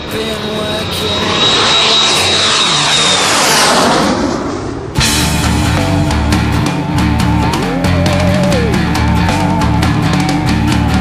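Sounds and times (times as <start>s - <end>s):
jet aircraft flypast roar: 0.0s - 7.5s
heavy rock music: 5.0s - 11.0s.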